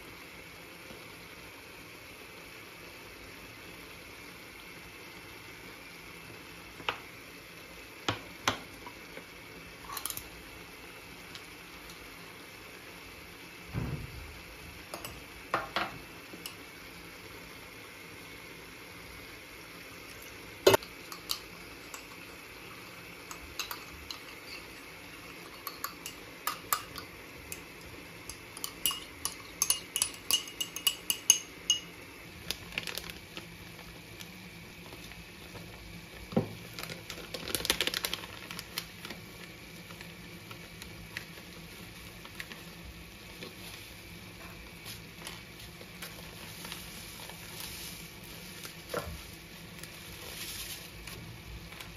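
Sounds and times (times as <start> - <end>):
pan sizzling: 0.0 - 51.9
spoon clinking ceramic cup: 20.8 - 22.2, 23.3 - 31.9.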